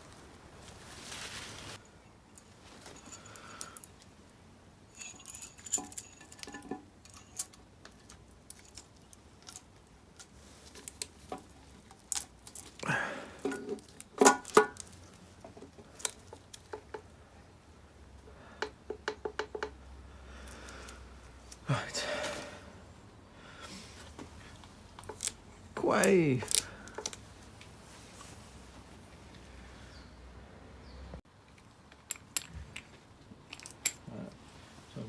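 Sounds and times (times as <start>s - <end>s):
metal clinks scrapes and knocks: 1.8s - 4.1s, 4.9s - 12.7s, 31.5s - 34.2s.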